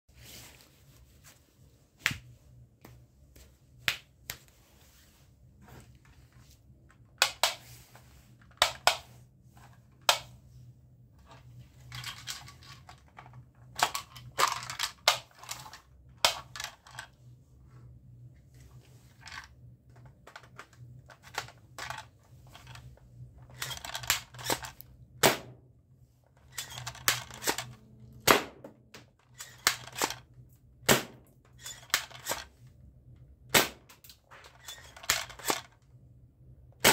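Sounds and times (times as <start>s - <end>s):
plastic toy guns clicking: 23.5s - 25.5s, 26.4s - 27.8s, 29.3s - 30.2s, 30.9s - 32.5s, 33.6s - 35.8s.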